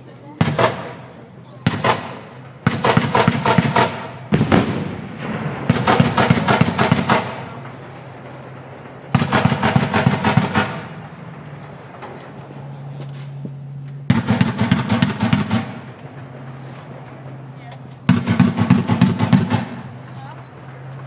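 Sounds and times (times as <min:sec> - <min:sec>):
steady low hum: 0:00.0 - 0:21.0
machine-gun fire: 0:00.4 - 0:11.4, 0:14.1 - 0:16.5, 0:18.0 - 0:20.2.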